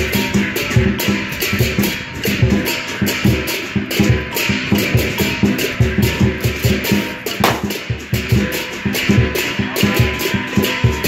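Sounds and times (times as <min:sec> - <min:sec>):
large drum beating: 0:07.4 - 0:08.3.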